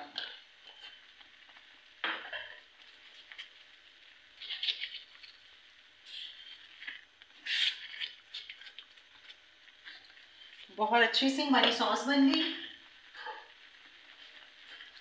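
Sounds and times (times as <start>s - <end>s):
spoon stirring thick sauce: 4.4s - 10.7s, 14.1s - 15.0s.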